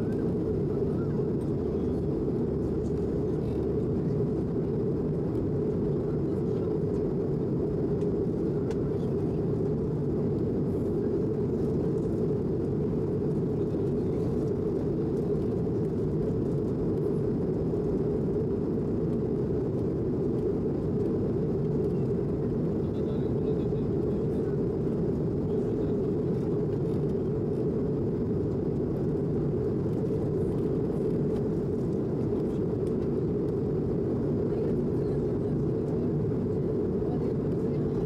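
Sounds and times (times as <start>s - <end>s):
airplane cabin engine roar: 0.0s - 38.0s.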